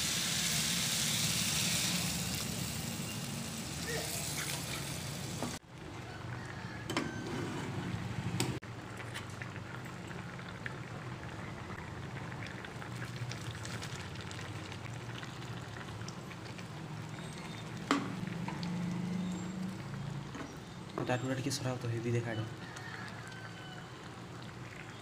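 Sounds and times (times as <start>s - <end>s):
curry simmering and bubbling: 8.6s - 25.0s.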